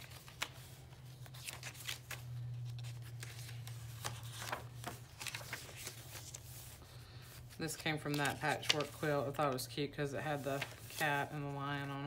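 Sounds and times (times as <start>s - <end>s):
paper pages rustling: 0.0s - 12.0s.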